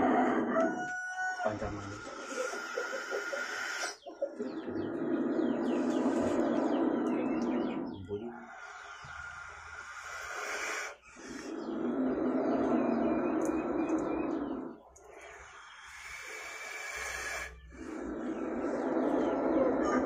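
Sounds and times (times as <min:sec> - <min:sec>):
small birds chirping: 0:00.6 - 0:20.0
snake hissing: 0:01.6 - 0:04.0, 0:04.6 - 0:20.0.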